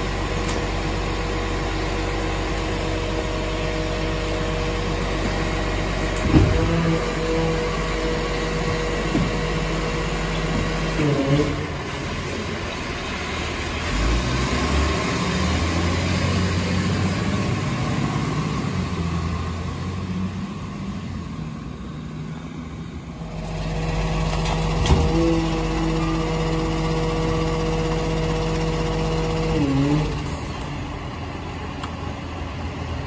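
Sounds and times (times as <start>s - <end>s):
garbage truck diesel engine: 0.0s - 33.0s.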